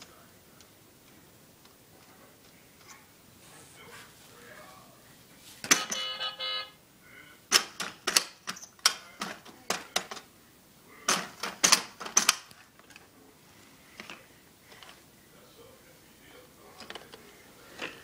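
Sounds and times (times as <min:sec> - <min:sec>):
electronic toy tone: 0:05.8 - 0:06.8.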